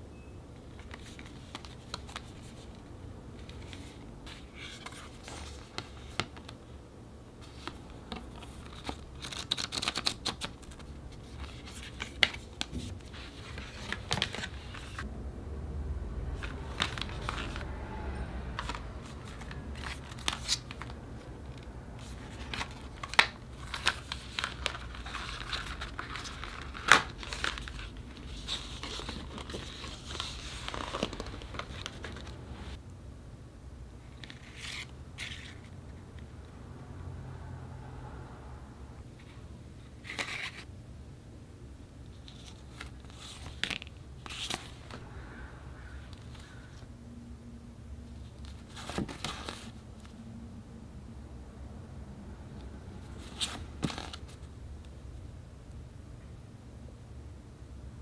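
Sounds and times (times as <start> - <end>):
wrapping crinkling and rustling: 22.0 - 32.8.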